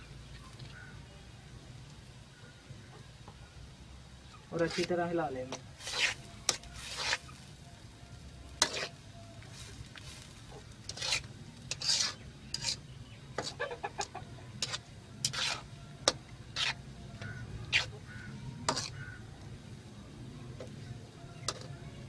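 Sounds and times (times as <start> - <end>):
metal spatula scraping a wok: 4.6 - 7.6, 8.4 - 19.3, 21.5 - 21.8.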